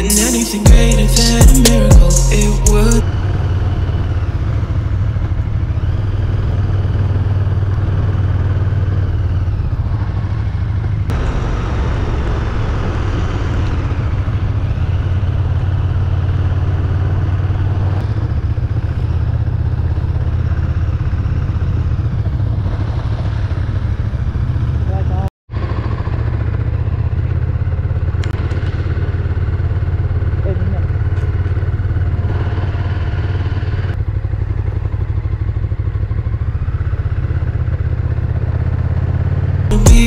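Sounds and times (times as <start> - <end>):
motorcycle engine running: 0.0 - 40.0
tyres on wet road: 3.0 - 39.7.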